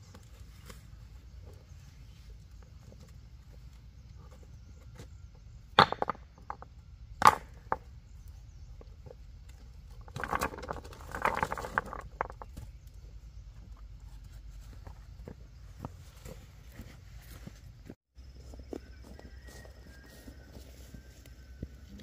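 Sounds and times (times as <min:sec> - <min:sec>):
scraping and rustling: 0:08.9 - 0:18.0.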